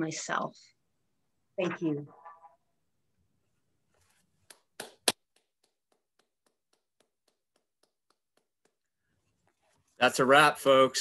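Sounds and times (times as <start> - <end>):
hand clapping: 4.5 - 8.9.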